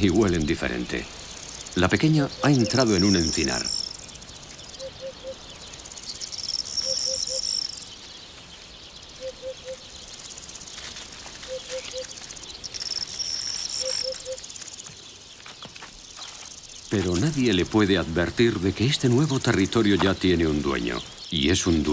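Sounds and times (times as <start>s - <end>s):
insect high buzz: 0.3s - 20.0s
bird hooting call: 2.1s - 3.9s, 4.8s - 5.5s, 6.6s - 7.8s, 9.2s - 9.9s, 11.4s - 12.2s, 13.7s - 14.5s.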